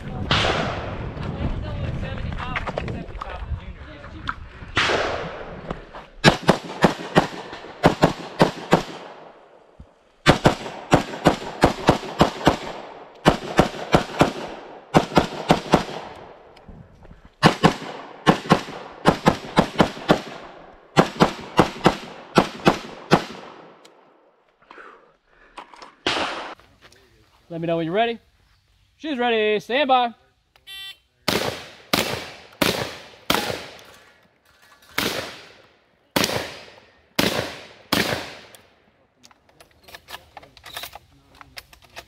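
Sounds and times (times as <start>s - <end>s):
fast semi-automatic rifle shots: 6.2s - 9.2s, 10.2s - 16.2s, 17.4s - 23.7s, 31.3s - 33.8s, 36.2s - 38.5s.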